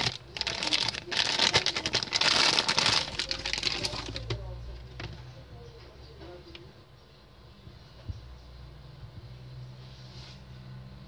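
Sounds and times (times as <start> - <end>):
plastic bag crinkling: 0.0 - 5.1.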